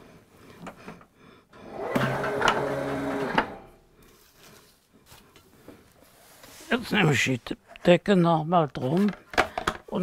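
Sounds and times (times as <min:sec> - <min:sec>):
paper cutter drive humming: 0:01.6 - 0:03.7.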